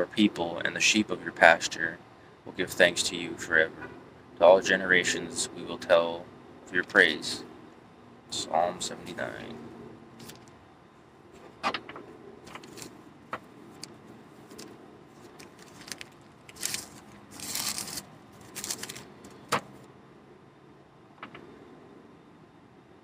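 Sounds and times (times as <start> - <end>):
book pages flicking and rustling: 12.5 - 19.9.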